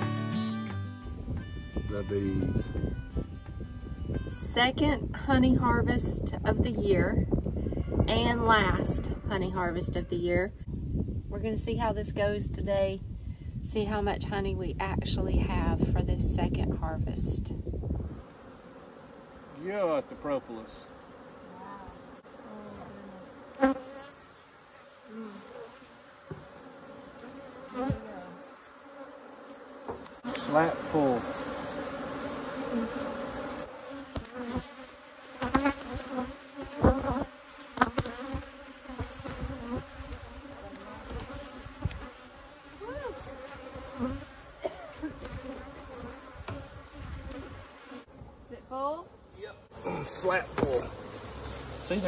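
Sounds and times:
honeybees buzzing: 17.7s - 52.0s.

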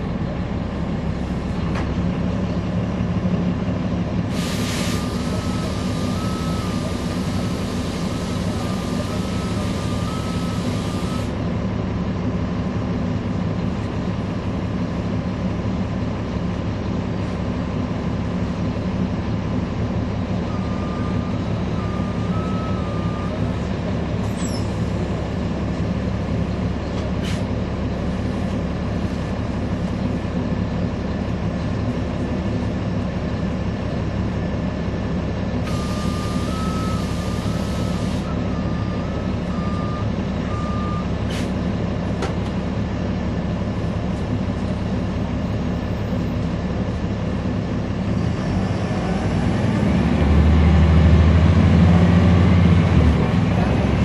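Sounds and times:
bus diesel engine idling: 0.0s - 54.0s
air hiss: 4.3s - 5.2s.

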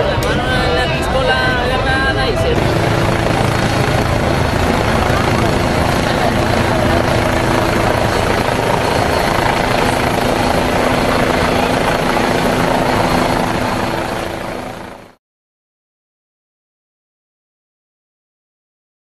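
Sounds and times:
helicopter flying overhead: 0.0s - 15.2s.

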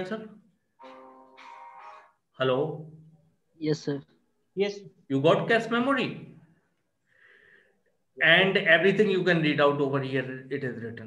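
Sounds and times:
man speaking: 5.0s - 6.4s, 8.1s - 11.0s
faint breathy sound: 7.0s - 8.0s.

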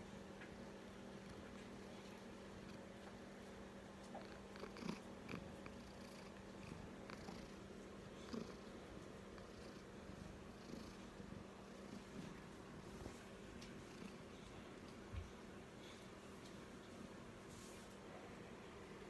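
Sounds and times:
kitten purring: 1.0s - 15.2s.

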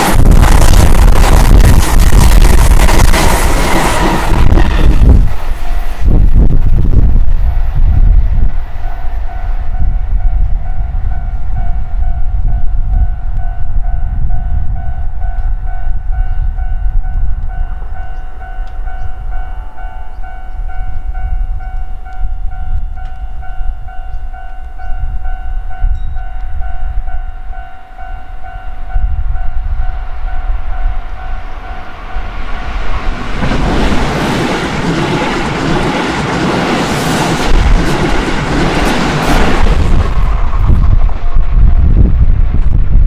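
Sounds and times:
low rumble: 0.0s - 18.0s, 39.1s - 43.0s
train passing with loud rush: 0.0s - 43.0s.

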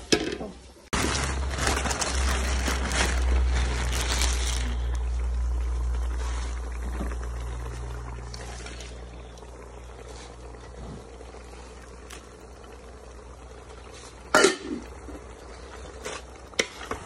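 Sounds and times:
rustling: 0.9s - 7.6s
steady low rumble: 1.0s - 15.8s.

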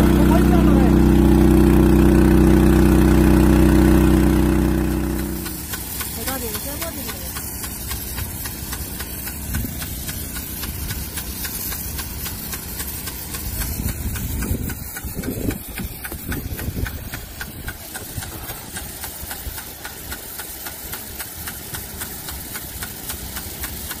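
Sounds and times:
low rumbles: 0.0s - 7.3s
pump engine running: 0.0s - 24.0s
fast regular ticking: 5.1s - 24.0s.

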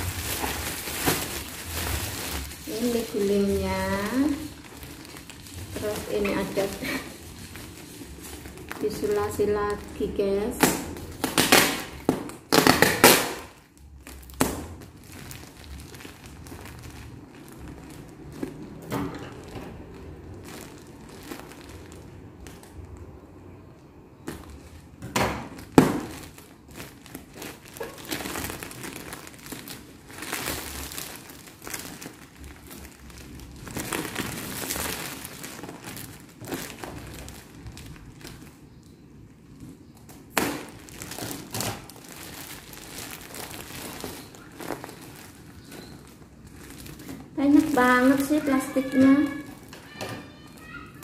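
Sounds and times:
plastic packaging crinkling: 0.0s - 51.0s.

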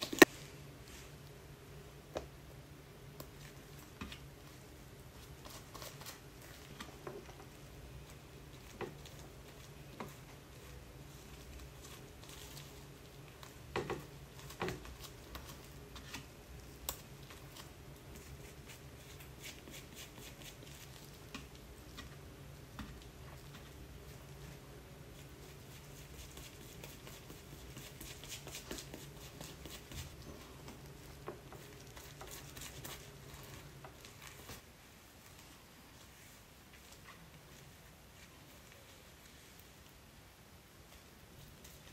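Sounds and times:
faint steady hum: 0.0s - 41.9s
soft squishing of dye: 0.0s - 41.9s
plastic glove crinkling: 3.2s - 40.1s.

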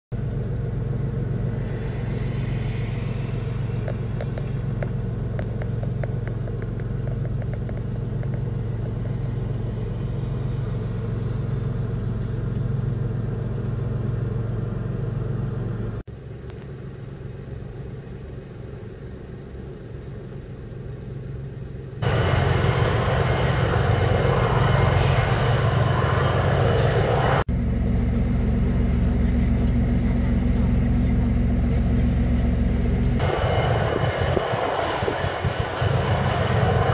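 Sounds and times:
low engine drone: 0.1s - 36.9s
rushing noise with high whine: 0.6s - 12.1s, 22.0s - 36.9s.

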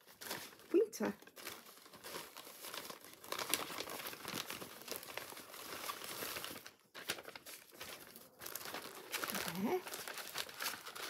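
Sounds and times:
packaging crinkling and rustling: 0.0s - 11.0s.

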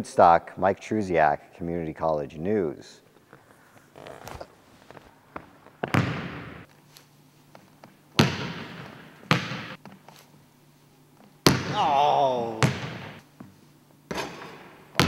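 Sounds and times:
basketball thudding with echo: 5.8s - 6.7s, 8.2s - 9.8s, 11.4s - 13.2s.

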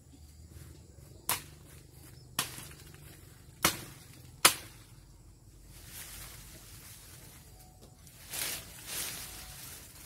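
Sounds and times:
branch wood cracking: 2.4s - 4.9s
faint rustle: 5.6s - 10.0s.

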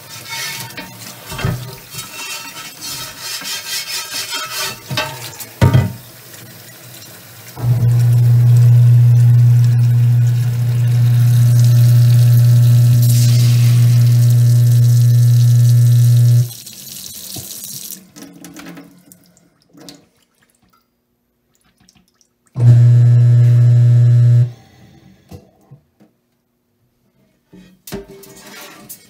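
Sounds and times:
faucet water rushing into sink: 7.0s - 18.0s, 22.6s - 24.5s
low hum: 7.6s - 16.5s, 22.6s - 24.6s.

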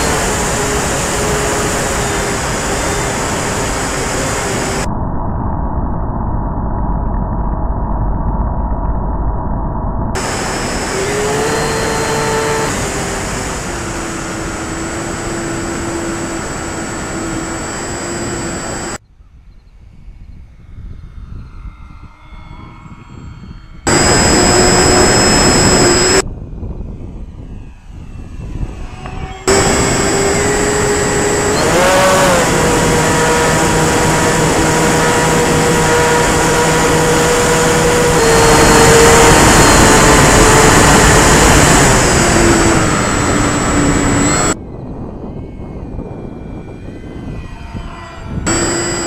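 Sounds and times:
model plane motors whining: 0.0s - 4.9s, 10.2s - 19.0s, 23.9s - 26.2s, 27.1s - 44.6s, 46.9s - 49.0s
wind rush: 0.0s - 7.4s, 10.2s - 19.0s, 19.9s - 49.0s.

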